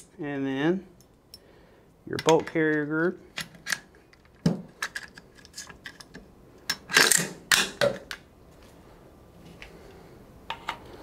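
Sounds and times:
metal parts clicking: 0:02.2 - 0:07.8.

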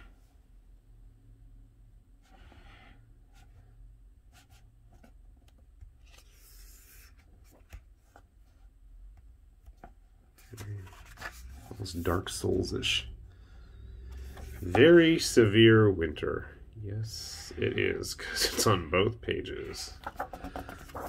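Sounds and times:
low steady hum: 0:00.0 - 0:21.0
hands rubbing book pages: 0:10.4 - 0:12.7, 0:20.0 - 0:21.0.

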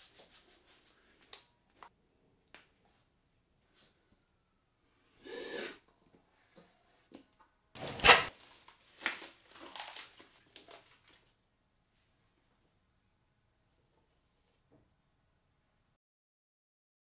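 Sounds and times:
man blowing breath: 0:04.9 - 0:05.8.

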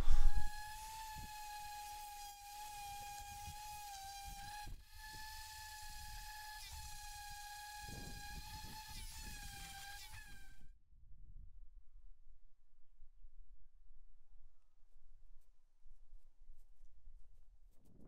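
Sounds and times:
orbital sander whining on wood: 0:00.0 - 0:10.6.

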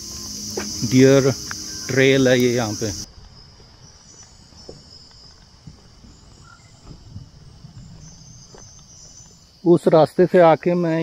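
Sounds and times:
crickets trilling: 0:00.0 - 0:11.0
soft low thumps: 0:05.6 - 0:09.2.

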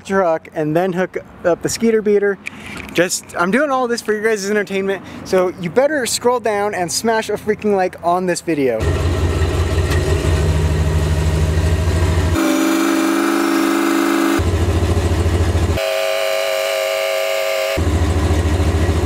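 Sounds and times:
truck engine rumbling: 0:00.0 - 0:19.0
multi-tone horn blasts: 0:12.3 - 0:14.4, 0:15.8 - 0:18.1.

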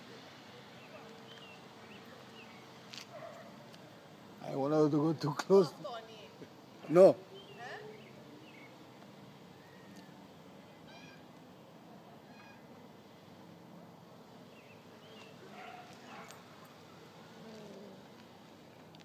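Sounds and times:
faint cat meowing: 0:12.2 - 0:12.6.

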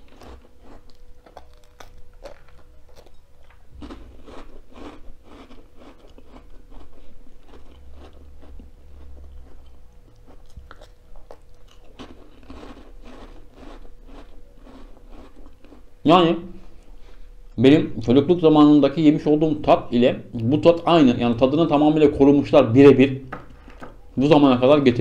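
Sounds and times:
crunching cracker: 0:00.0 - 0:15.8.

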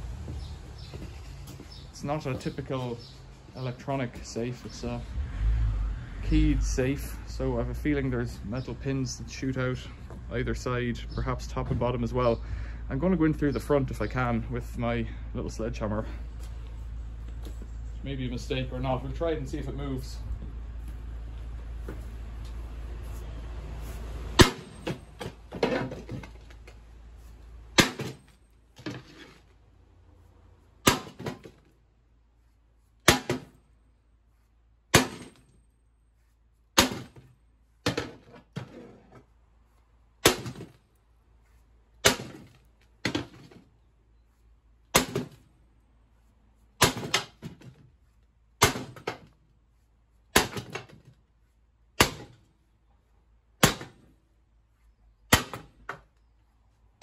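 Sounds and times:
sledgehammer striking steel safe: 0:24.4 - 0:25.9, 0:27.8 - 0:28.3, 0:30.8 - 0:31.5, 0:33.0 - 0:33.6, 0:34.9 - 0:35.6, 0:36.8 - 0:37.3, 0:40.2 - 0:40.8, 0:42.0 - 0:43.4, 0:44.9 - 0:45.4, 0:46.8 - 0:47.4, 0:48.6 - 0:49.2, 0:50.3 - 0:50.9, 0:52.0 - 0:52.4, 0:53.6 - 0:54.1.

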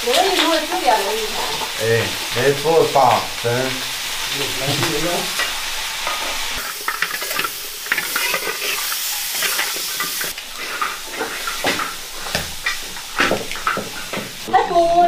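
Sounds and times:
meat sizzling in hot oil: 0:00.0 - 0:15.0
metal spatula scraping wok: 0:04.0 - 0:14.4.

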